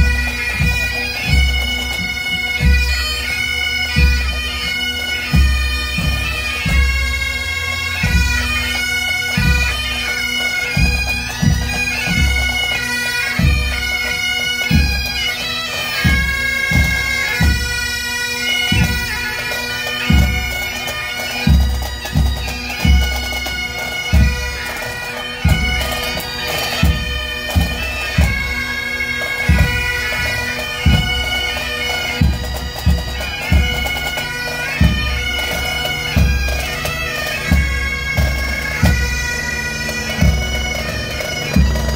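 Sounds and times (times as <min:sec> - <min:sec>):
bagpipes playing: 0:00.0 - 0:41.9
drums beating: 0:10.7 - 0:12.7, 0:18.5 - 0:19.3, 0:20.0 - 0:28.7, 0:29.4 - 0:41.9.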